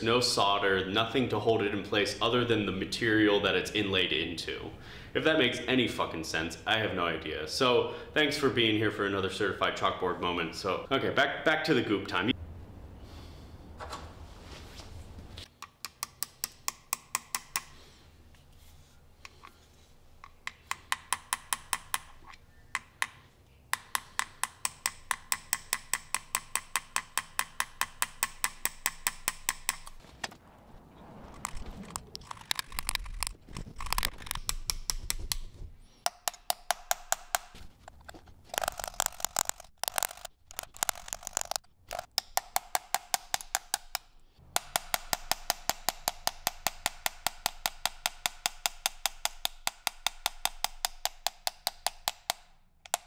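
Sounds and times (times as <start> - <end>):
hammer tapping chisel into iron: 15.6 - 17.9, 20.2 - 30.0, 34.3 - 37.6, 42.1 - 53.0
low handling noise: 27.6 - 42.2.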